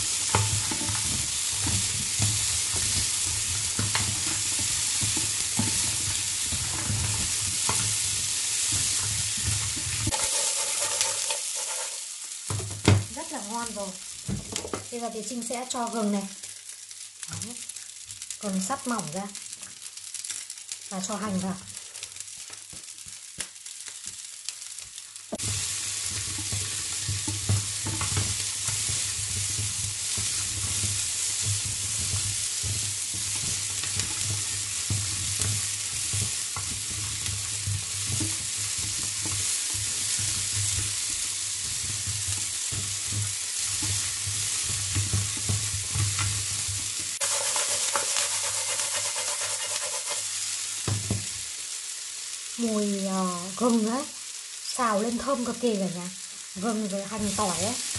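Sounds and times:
spatula scraping and knocking pan: 0:00.0 - 0:13.2, 0:25.3 - 0:51.4
food sizzling in hot oil: 0:00.0 - 0:57.9.

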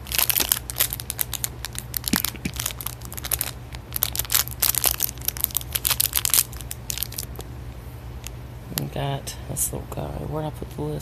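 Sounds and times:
plastic packet crinkling and tearing: 0:00.0 - 0:07.4.

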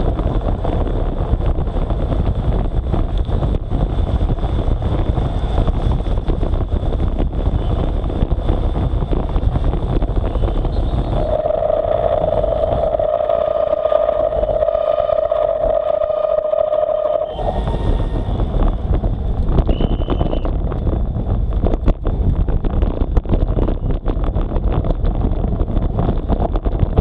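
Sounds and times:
wind buffeting microphone: 0:00.0 - 0:27.0
steady high tone: 0:10.7 - 0:18.9.

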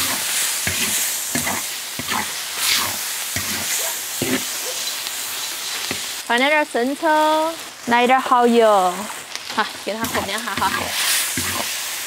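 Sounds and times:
spatula scraping a wok: 0:00.0 - 0:06.2, 0:09.0 - 0:12.0
food sizzling in a wok: 0:00.0 - 0:12.0.

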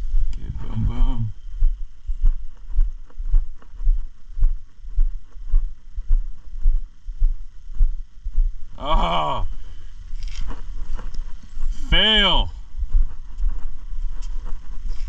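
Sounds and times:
person's voice: 0:00.4 - 0:01.3, 0:08.8 - 0:09.5, 0:11.6 - 0:12.6
footsteps on asphalt: 0:01.6 - 0:08.7, 0:09.5 - 0:15.0.

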